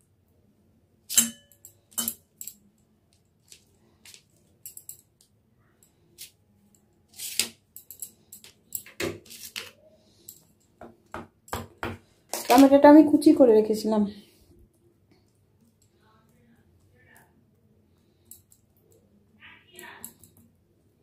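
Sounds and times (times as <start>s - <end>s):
kitchen utensils clinking: 1.1s - 2.6s.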